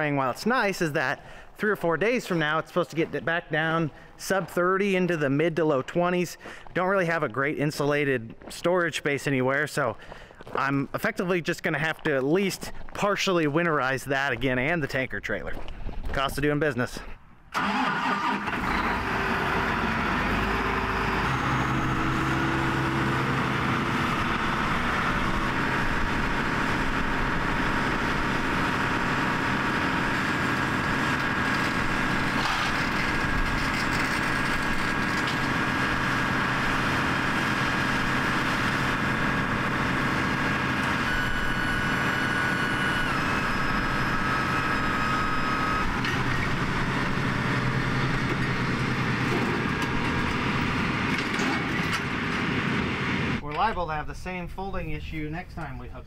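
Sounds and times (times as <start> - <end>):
hydraulic whine: 17.5 - 53.4
tractor diesel engine running: 17.5 - 53.4.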